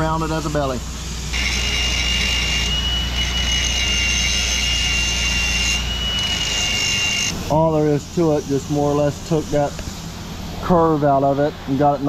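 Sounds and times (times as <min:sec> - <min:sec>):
angle grinder grinding steel: 0:01.3 - 0:07.4.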